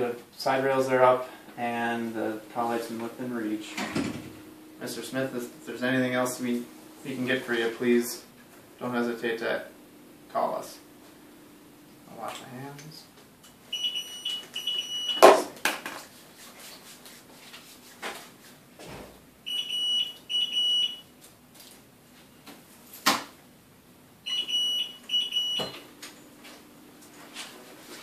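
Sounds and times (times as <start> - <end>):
infusion pump alarm beeping: 13.7 - 15.4, 19.4 - 21.1, 24.2 - 26.6.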